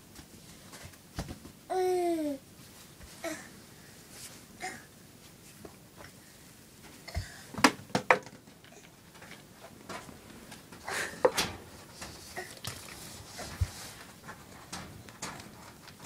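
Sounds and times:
rustling: 11.5s - 16.0s.

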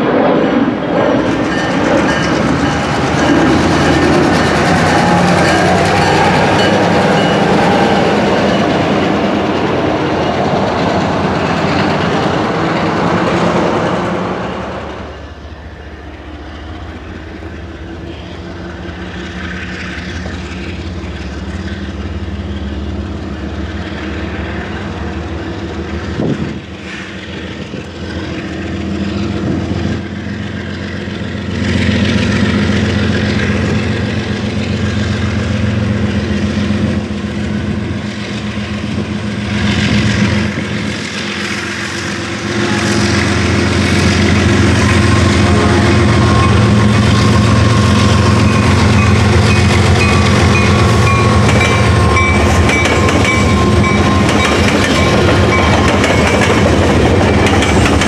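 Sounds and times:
diesel locomotive engine drone: 0.0s - 58.0s
locomotives passing: 0.0s - 58.0s.

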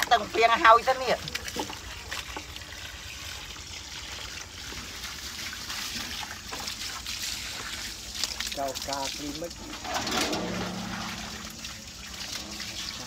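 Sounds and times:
water splashing from hose: 0.0s - 13.0s.

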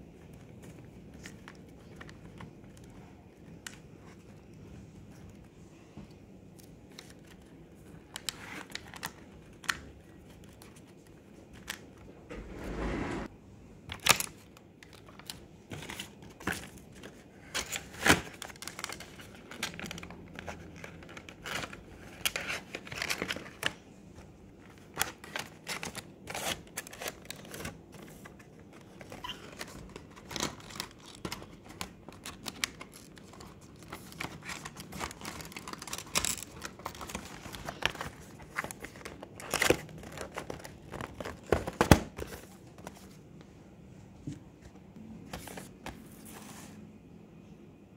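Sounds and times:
sticker packaging crinkling: 14.0s - 23.8s, 24.6s - 43.0s.

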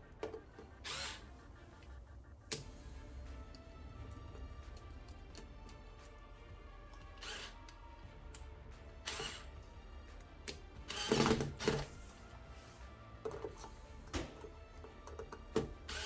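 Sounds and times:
electric screwdriver driving screws: 0.8s - 1.2s, 7.0s - 7.8s, 9.0s - 9.5s, 10.8s - 11.9s, 15.8s - 16.0s.

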